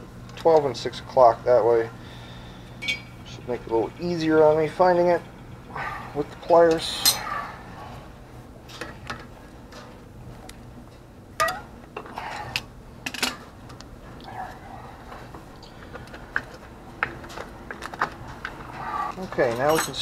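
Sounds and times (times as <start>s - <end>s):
metallic clicks and clinks: 19.4s - 20.0s.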